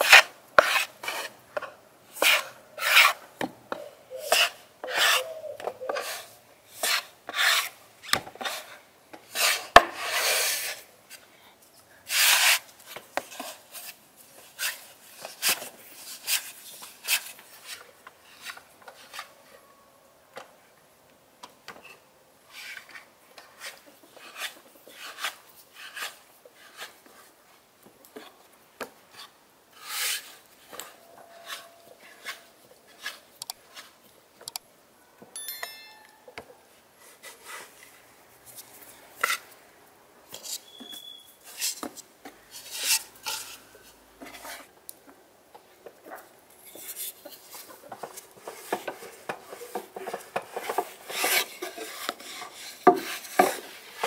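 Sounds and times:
hands working dough on a board: 0.0s - 10.9s, 22.5s - 34.2s, 45.7s - 54.0s
rolling pin rolling dough: 47.6s - 54.0s.

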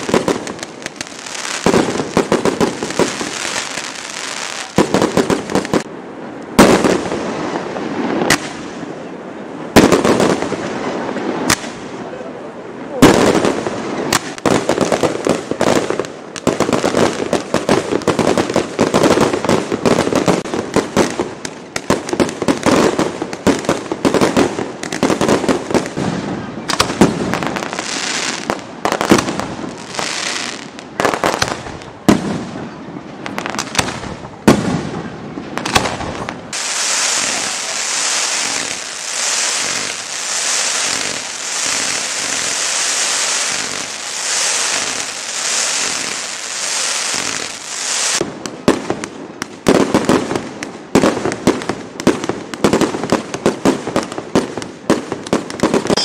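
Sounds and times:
fireworks bursting and crackling: 0.0s - 12.1s, 12.7s - 56.0s
high hiss: 36.5s - 48.2s.

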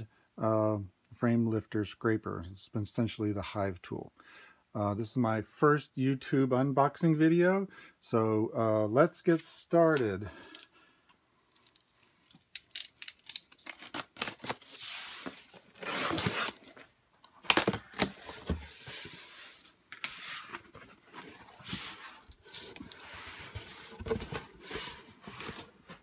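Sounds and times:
packing tape ripping: 12.5s - 18.6s.

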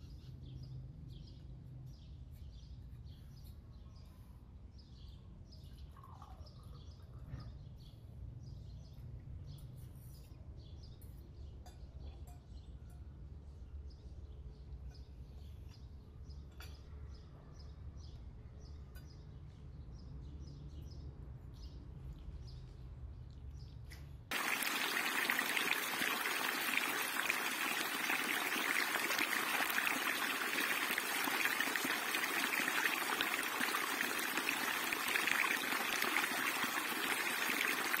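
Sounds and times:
faint birds chirping: 24.3s - 38.0s
stream splashing over rocks: 24.3s - 38.0s.

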